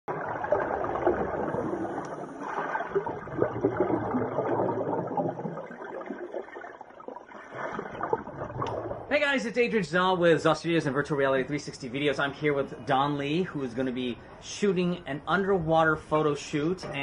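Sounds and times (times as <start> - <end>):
underwater air bubbles: 0.1 - 9.1.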